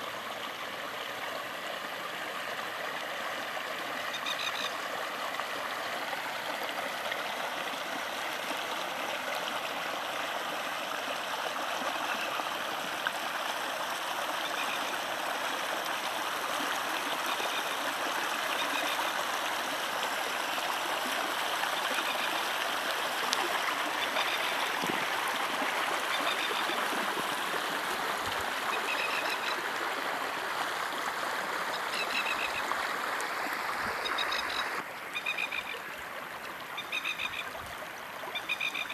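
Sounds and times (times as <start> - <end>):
floodwater rushing over ground: 0.0 - 38.9
faint high chirping calls: 38.3 - 38.9.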